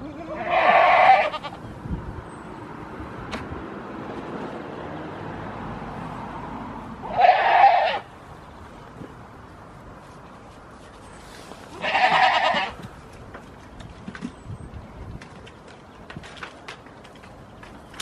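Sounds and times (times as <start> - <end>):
goat kid bleating: 0.0 - 1.6, 11.7 - 12.8.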